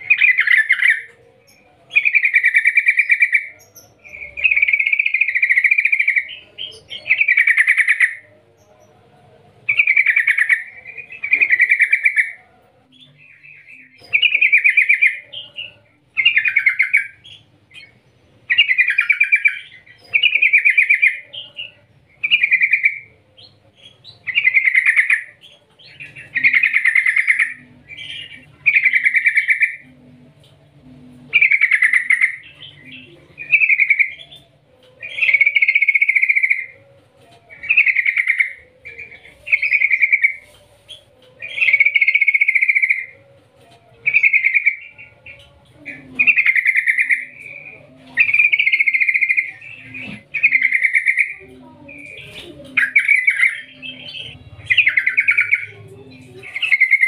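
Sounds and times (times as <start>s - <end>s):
bird singing bubbly phrases: 31.3s - 34.4s, 45.9s - 57.0s.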